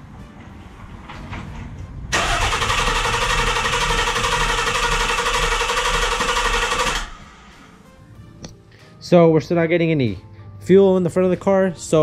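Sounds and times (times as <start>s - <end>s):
car starter cranking engine: 2.1s - 7.5s.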